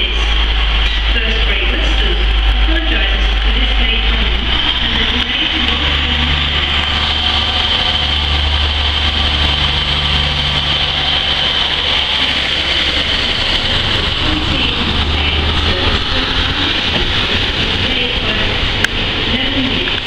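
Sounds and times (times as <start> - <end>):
diesel railcar engine passing: 0.0 - 20.0.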